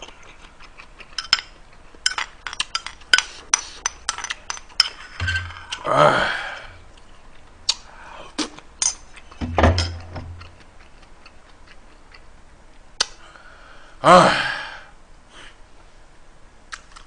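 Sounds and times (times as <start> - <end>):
person eating: 0.0 - 9.4, 10.0 - 12.4.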